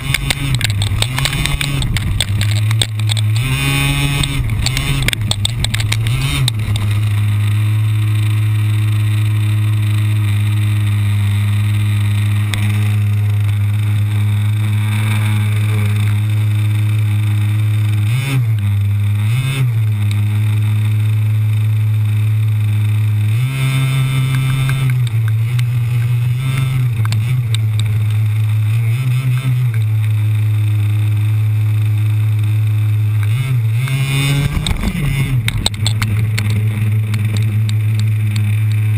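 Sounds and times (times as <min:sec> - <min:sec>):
toy car engine droning: 0:00.0 - 0:38.9.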